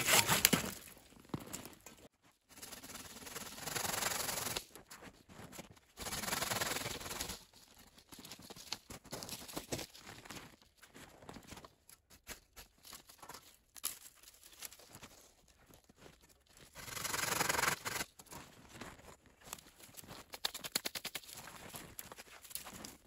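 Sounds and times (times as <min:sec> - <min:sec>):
branches scraping: 0:00.0 - 0:01.0.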